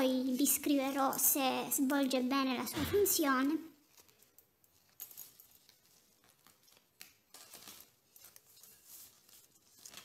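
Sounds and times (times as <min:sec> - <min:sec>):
stethoscope handling rustles: 0:03.8 - 0:10.0.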